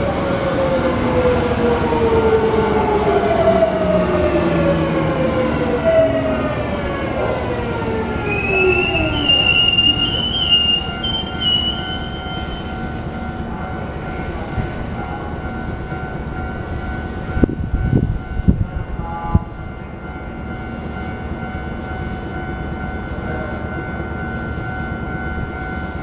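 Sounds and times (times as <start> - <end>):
electric train motor tone: 0.8 - 13.3
wheels squealing on rails: 7.4 - 16.0, 20.5 - 26.0.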